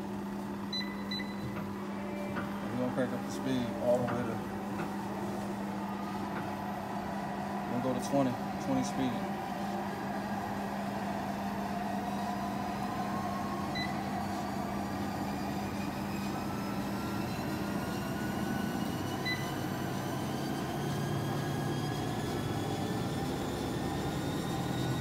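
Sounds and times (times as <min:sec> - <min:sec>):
treadmill motor whine: 0:00.0 - 0:25.0
short beeps: 0:00.7 - 0:01.6.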